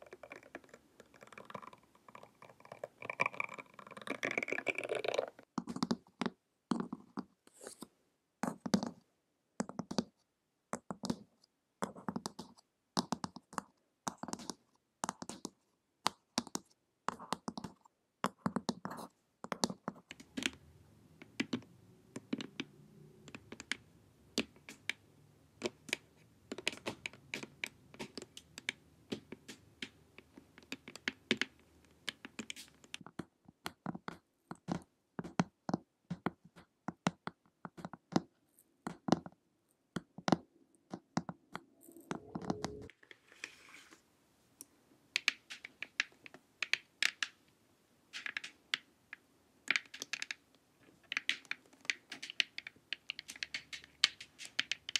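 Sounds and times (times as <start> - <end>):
fingernails tapping on plastic mask: 25.6 - 41.4.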